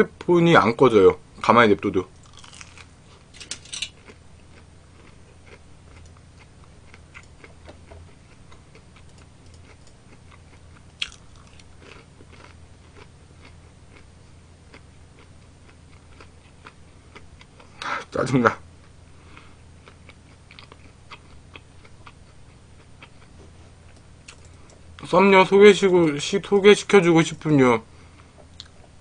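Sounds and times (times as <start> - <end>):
faint low hum: 0.0 - 29.0
person chewing crunchy food: 2.2 - 17.9, 18.8 - 24.9.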